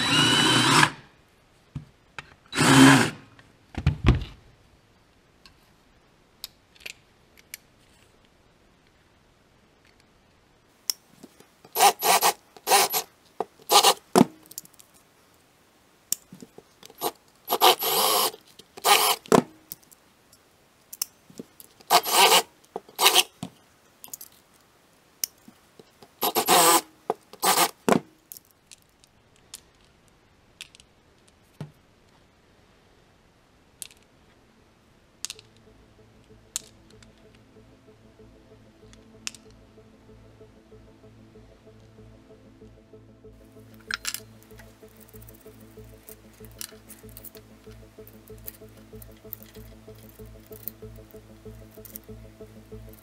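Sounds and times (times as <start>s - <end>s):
small metal pieces ticking: 43.8s - 52.2s.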